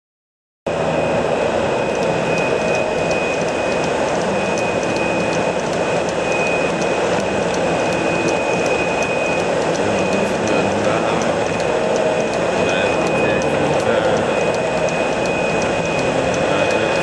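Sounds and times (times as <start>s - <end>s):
airplane engine and propeller drone: 0.7s - 17.0s
faint high whine: 0.7s - 17.0s
light rapid ticking: 1.8s - 17.0s.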